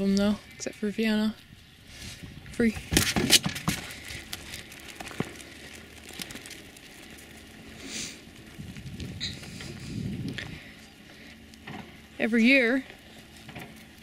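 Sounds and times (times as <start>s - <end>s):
footsteps crunching on gravel: 2.8s - 12.0s.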